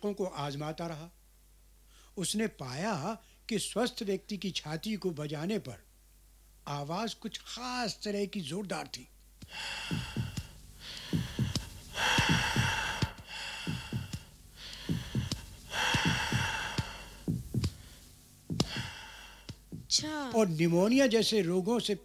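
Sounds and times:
deep breathing: 9.4 - 19.9
fingers tapping on chest: 9.4 - 20.3.

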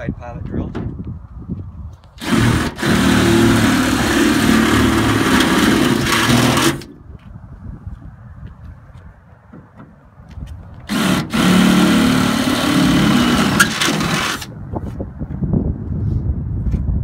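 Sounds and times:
cordless drill boring into metal: 2.2 - 6.9, 10.9 - 14.5
faint footsteps: 7.1 - 10.9.

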